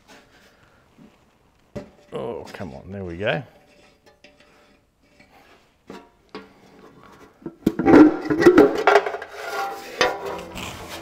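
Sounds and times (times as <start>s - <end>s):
metal cover scraping and clanging: 3.5s - 11.0s.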